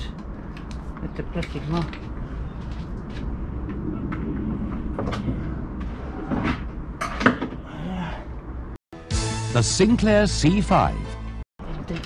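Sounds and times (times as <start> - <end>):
steady low rumble: 0.0 - 7.0.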